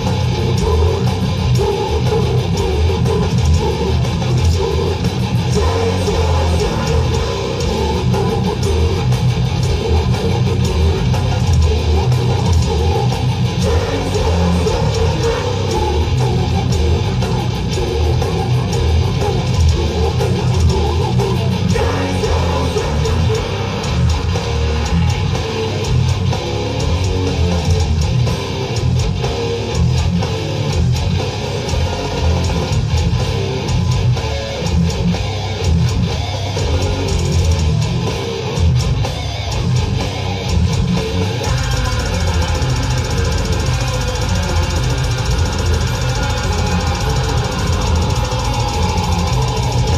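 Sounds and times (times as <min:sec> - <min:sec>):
vocalist singing: 0:00.0 - 0:26.1, 0:41.3 - 0:49.9
distorted electric guitars: 0:00.0 - 0:49.9
fast dense drumming: 0:00.0 - 0:49.9.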